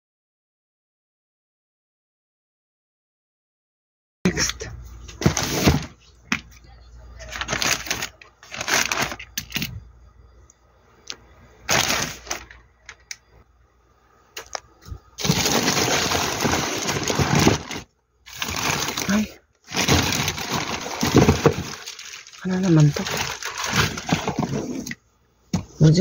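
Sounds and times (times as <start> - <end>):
plastic bag crinkling: 7.2 - 9.7, 11.7 - 13.0, 15.2 - 24.9.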